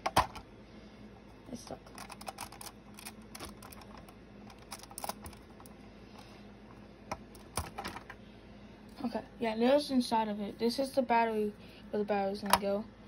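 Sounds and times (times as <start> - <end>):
plastic pieces clicking and rattling: 1.8 - 5.7, 7.1 - 8.1.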